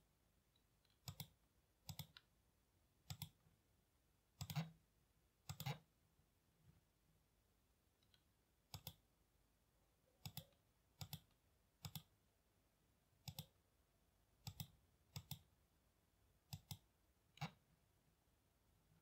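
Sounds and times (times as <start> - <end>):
computer mouse clicks: 0.8 - 2.3, 3.0 - 3.4, 4.4 - 4.8, 5.4 - 5.9, 8.0 - 9.0, 10.2 - 12.1, 13.2 - 13.6, 14.4 - 15.5, 16.5 - 17.6.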